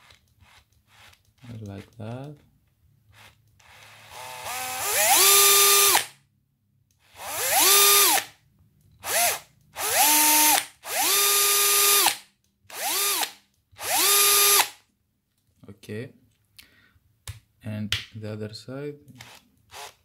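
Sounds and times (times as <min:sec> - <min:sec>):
cordless drill whining: 0:00.0 - 0:01.4, 0:03.1 - 0:06.1, 0:07.0 - 0:08.4, 0:09.0 - 0:14.8, 0:19.2 - 0:20.0.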